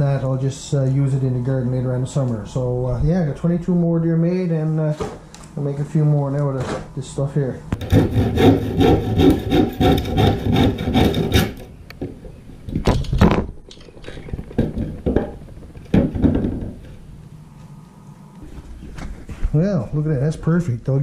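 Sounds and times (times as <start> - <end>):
wood scraping on wood: 7.7 - 11.7
wood knocks: 14.4 - 16.8.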